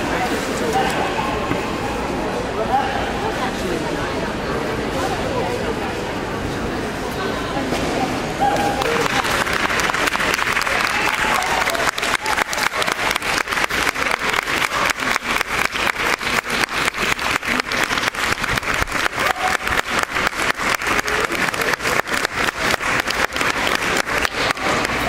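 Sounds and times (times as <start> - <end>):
crowd applause: 8.5 - 25.0
hands clapping close by: 8.8 - 25.0.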